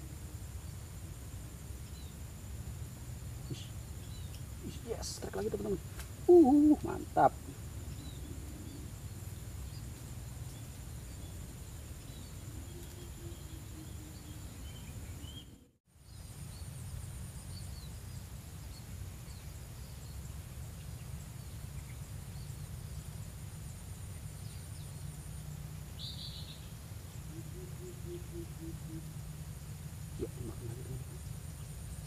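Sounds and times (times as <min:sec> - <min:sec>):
high-pitched insect drone: 0:03.2 - 0:15.2, 0:23.9 - 0:32.0.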